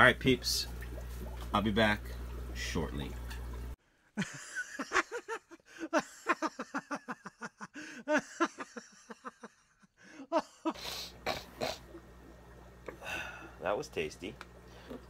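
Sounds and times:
steady room hum: 0:00.0 - 0:07.5, 0:10.1 - 0:15.0
person laughing: 0:04.2 - 0:10.9.

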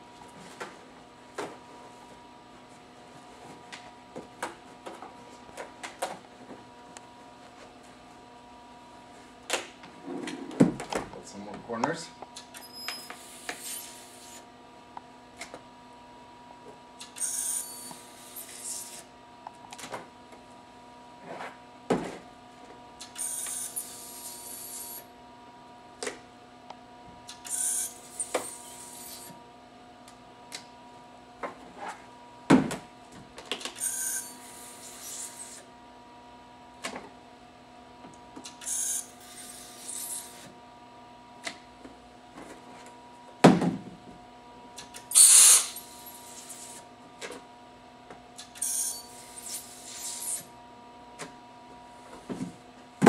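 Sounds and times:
high-pitched ultrasonic welder bursts: 0:12.5 - 0:14.4, 0:17.0 - 0:19.0, 0:23.0 - 0:25.1, 0:27.4 - 0:29.3, 0:33.8 - 0:35.6, 0:38.5 - 0:40.5, 0:45.1 - 0:46.8, 0:48.4 - 0:50.5.

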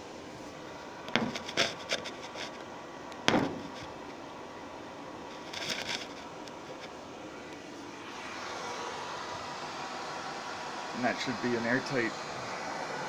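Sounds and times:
exhaust blower rushing: 0:00.0 - 0:13.0.

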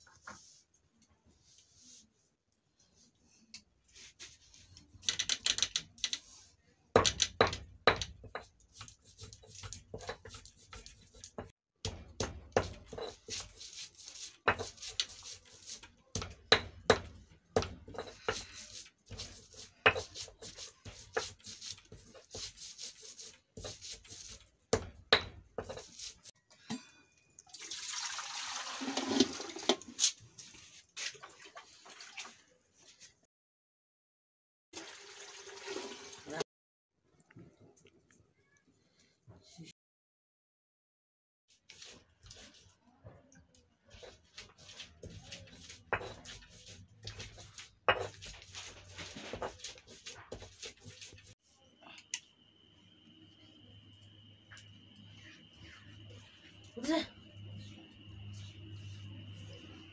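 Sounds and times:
kitchen knocks and clatters: 0:06.9 - 0:08.6, 0:16.1 - 0:18.5, 0:45.8 - 0:50.8.

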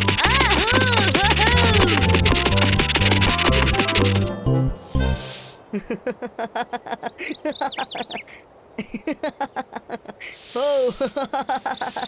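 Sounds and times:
short hiss: 0:04.8 - 0:05.6, 0:10.2 - 0:12.0.

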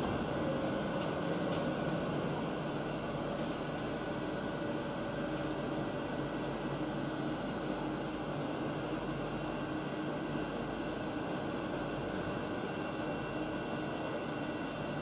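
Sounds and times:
milling machine whirring hum: 0:00.0 - 0:15.0.

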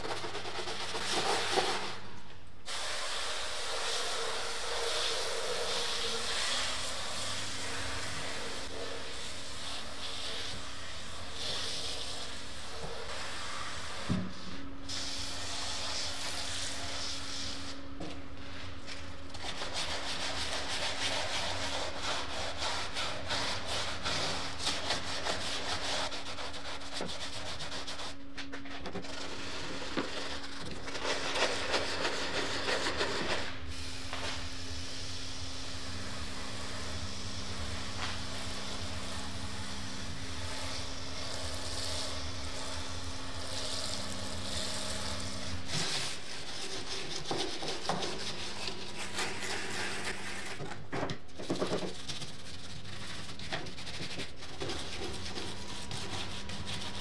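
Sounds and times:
stiff brush scrubbing wheel rim: 0:18.5 - 0:33.6, 0:40.1 - 0:57.0
sponge scrubbing rubber tyre: 0:19.4 - 0:28.2, 0:40.8 - 0:50.6.

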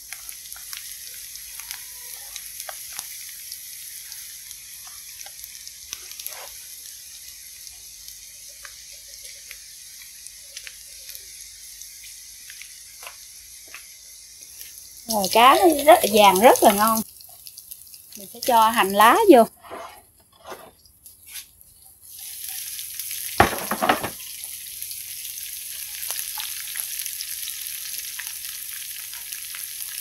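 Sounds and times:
sharp crackling pops: 0:00.0 - 0:18.8
oil sizzling in a frying pan: 0:00.0 - 0:19.6, 0:20.8 - 0:30.0.

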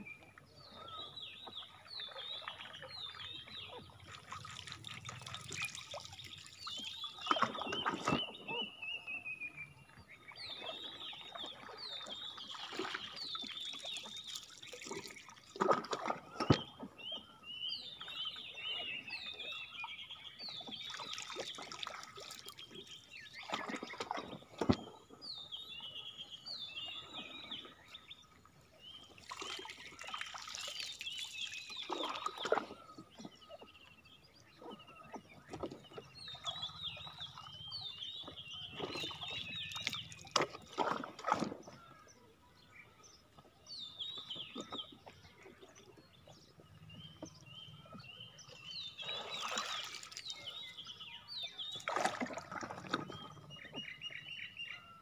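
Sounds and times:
water splashing and sloshing: 0:00.0 - 0:54.4
small birds chirping: 0:16.0 - 0:55.0.

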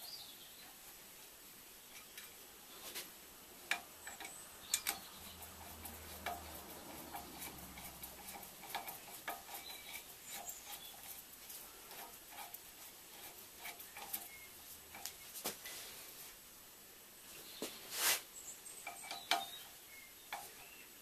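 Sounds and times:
light metallic clicks: 0:03.6 - 0:11.2.

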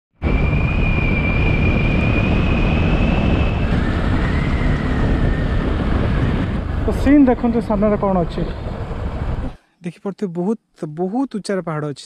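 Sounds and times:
thin high whine: 0:00.2 - 0:08.6
wind rushing over microphone: 0:00.2 - 0:09.6.

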